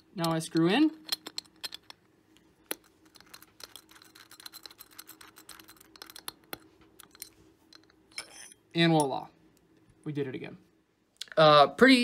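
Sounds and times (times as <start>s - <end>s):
small clicks and light scrapes: 1.0s - 8.5s.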